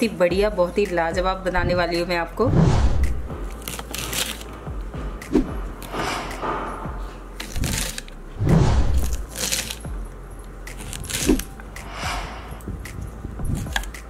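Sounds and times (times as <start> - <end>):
beans clattering and rustling: 9.0 - 9.9.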